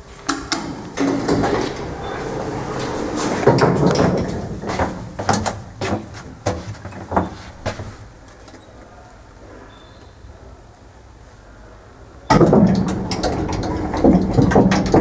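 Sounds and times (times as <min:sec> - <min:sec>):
elevator doors rumbling: 0:00.0 - 0:08.3, 0:12.3 - 0:15.0
sharp clicks and knocks: 0:00.2 - 0:02.0, 0:03.2 - 0:08.6, 0:12.3 - 0:15.0.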